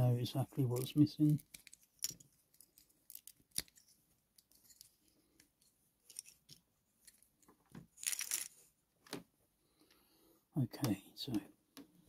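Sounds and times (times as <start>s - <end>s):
plastic pieces clattering: 0.8s - 3.8s, 8.0s - 8.6s
plastic bricks clicking and knocking: 0.8s - 5.5s.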